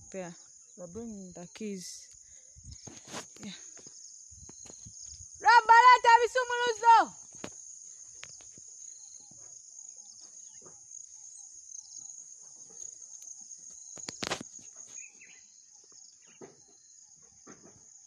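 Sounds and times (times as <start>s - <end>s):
insect chorus: 0.0s - 18.0s
soft rustles and knocks: 16.2s - 18.0s.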